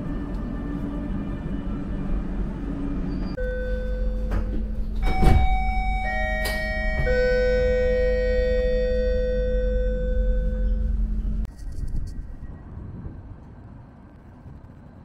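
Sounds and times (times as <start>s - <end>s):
steady low rumble: 0.0s - 15.0s
descending announcement chime: 5.0s - 11.2s.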